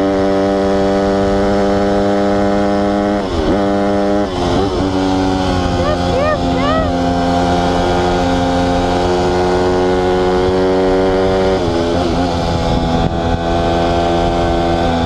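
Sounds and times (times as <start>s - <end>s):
motorbike engine running hard: 0.0s - 15.0s.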